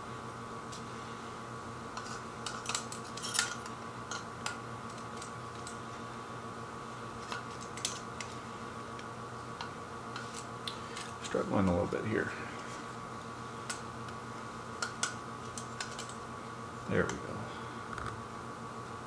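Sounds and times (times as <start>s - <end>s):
steady hum: 0.0s - 19.0s
metal calipers clicking and tapping: 14.8s - 16.2s.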